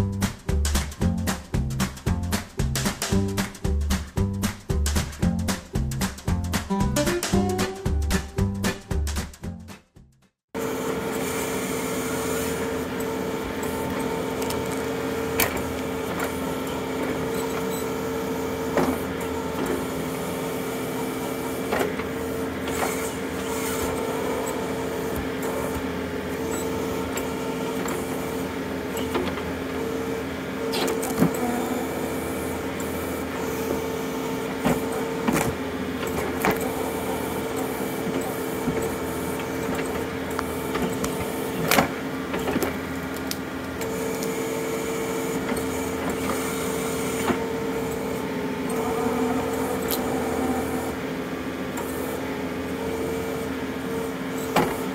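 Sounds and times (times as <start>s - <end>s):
hydraulic whine: 10.6s - 54.9s
tractor diesel engine running: 11.7s - 53.4s.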